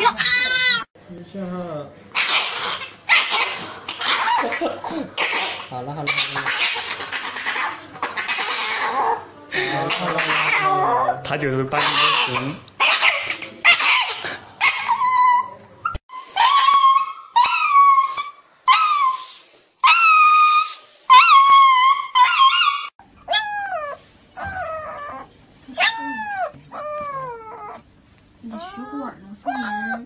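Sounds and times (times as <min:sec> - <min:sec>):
small dog high-pitched crying: 0:00.0 - 0:00.9, 0:11.8 - 0:27.8, 0:28.4 - 0:30.0.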